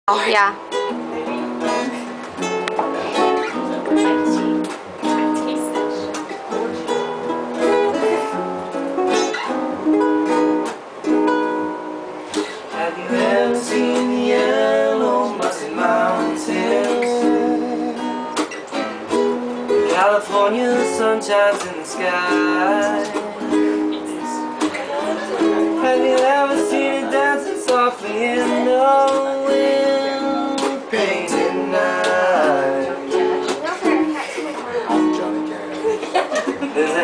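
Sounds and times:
acoustic guitar strumming: 0:00.1 - 0:37.0
ukulele strumming: 0:00.6 - 0:37.0
man singing: 0:12.7 - 0:18.3, 0:19.8 - 0:33.5, 0:36.7 - 0:37.0.

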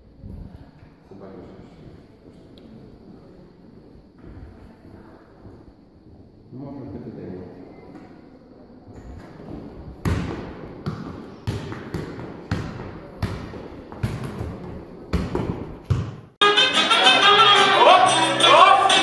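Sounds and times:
football thudding on floor: 0:10.0 - 0:16.3
latin dance music: 0:16.4 - 0:19.0.

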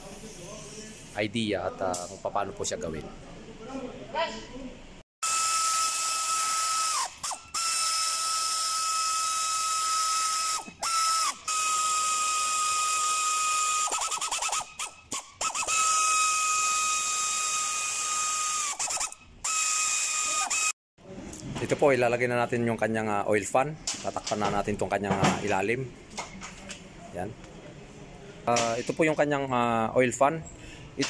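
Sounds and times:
pneumatic ratchet whining: 0:05.2 - 0:20.8.

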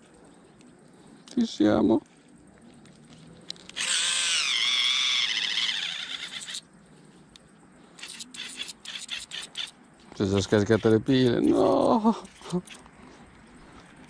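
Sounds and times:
electric motor whining: 0:03.7 - 0:06.6.

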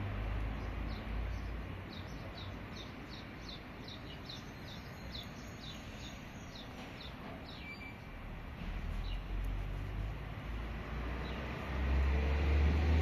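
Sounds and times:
steady background noise: 0:00.0 - 0:13.0
small bird chirping: 0:00.4 - 0:08.2.

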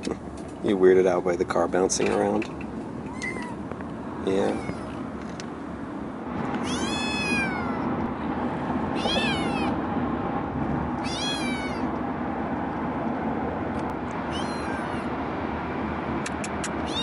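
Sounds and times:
car road noise: 0:00.0 - 0:17.0
kitten meowing: 0:03.0 - 0:03.7, 0:04.3 - 0:05.0, 0:06.6 - 0:08.0, 0:08.9 - 0:09.8, 0:11.0 - 0:11.9, 0:14.3 - 0:15.1, 0:16.6 - 0:17.0.

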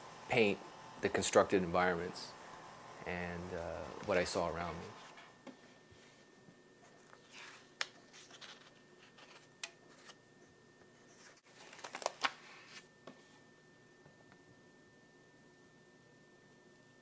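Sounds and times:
paper pages rustling: 0:06.9 - 0:10.2, 0:11.0 - 0:12.9.

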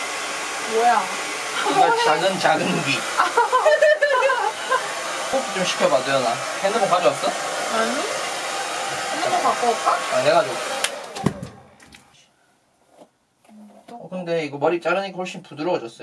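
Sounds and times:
hair dryer blowing: 0:00.0 - 0:11.8.

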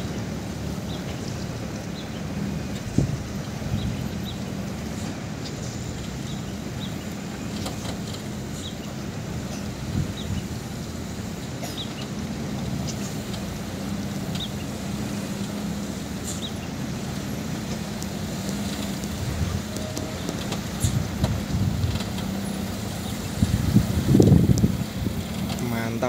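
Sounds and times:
truck engine running low: 0:00.0 - 0:26.0.

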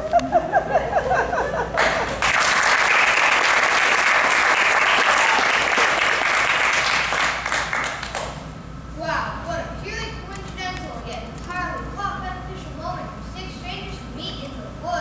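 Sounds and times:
audience applauding: 0:01.8 - 0:08.4.

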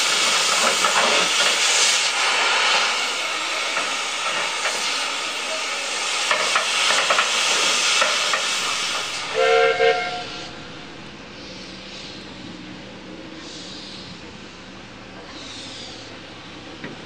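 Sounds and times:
cutting torch hissing: 0:00.0 - 0:12.3
steam locomotive whistle toots: 0:08.6 - 0:10.7.

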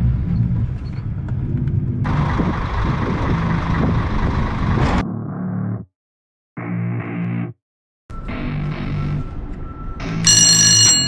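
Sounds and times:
truck diesel engine running: 0:00.0 - 0:05.0.

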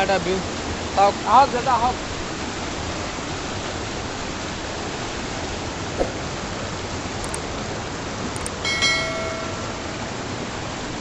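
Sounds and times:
chime ringing: 0:08.4 - 0:10.7.

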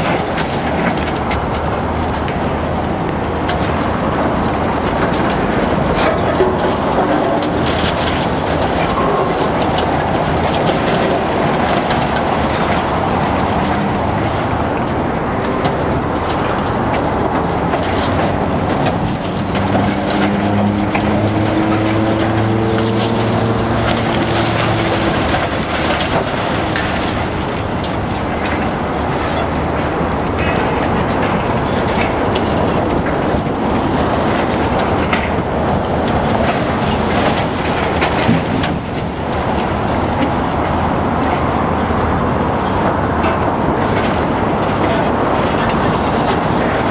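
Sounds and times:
diesel engine: 0:00.0 - 0:46.9
concrete crushing: 0:03.4 - 0:40.7.

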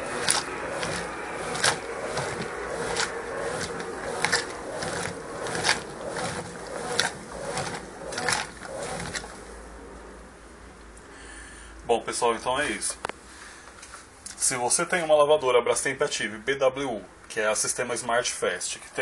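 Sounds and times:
washing machine churning water: 0:00.0 - 0:09.6.

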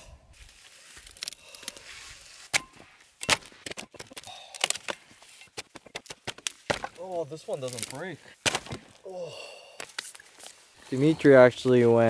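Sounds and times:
dry sticks snapping: 0:00.9 - 0:01.8, 0:02.5 - 0:09.0, 0:09.8 - 0:10.6.

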